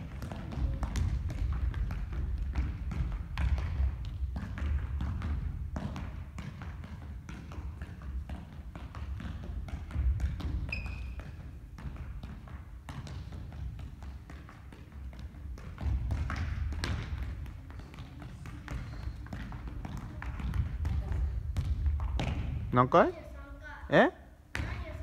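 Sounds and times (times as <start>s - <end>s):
ball thumping and bouncing: 0.0s - 23.1s, 24.5s - 25.0s
footsteps on wooden gym floor: 0.0s - 23.5s
shoe squeak: 10.6s - 11.4s, 18.8s - 19.3s.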